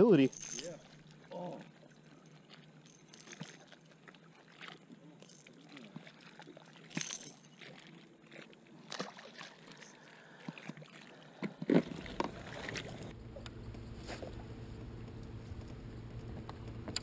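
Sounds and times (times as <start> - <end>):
fish splashing into water: 8.9 - 13.1
steady low hum: 9.6 - 17.0.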